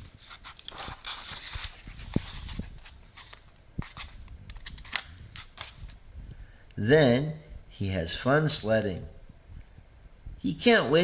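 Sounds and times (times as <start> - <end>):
book page turning: 0.0 - 5.9
paper rustling: 0.0 - 5.9.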